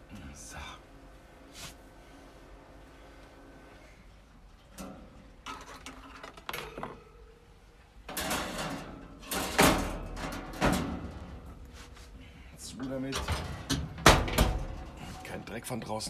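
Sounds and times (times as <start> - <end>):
metal grates scraping and clattering: 4.7 - 7.0, 8.1 - 11.8, 12.6 - 15.5.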